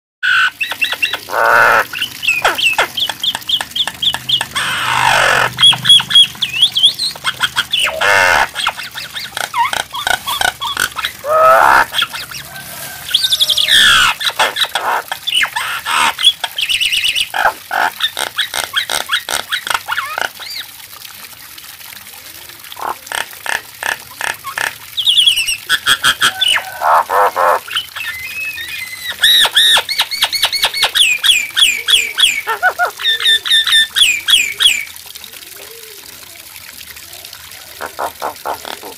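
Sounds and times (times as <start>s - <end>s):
myna bird singing: 0.3s - 12.5s, 25.0s - 34.9s.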